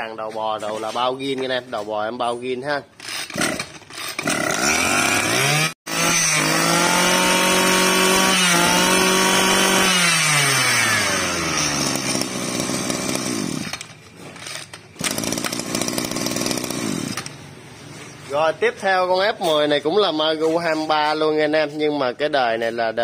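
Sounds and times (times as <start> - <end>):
brush cutter engine running: 3.0 - 17.4.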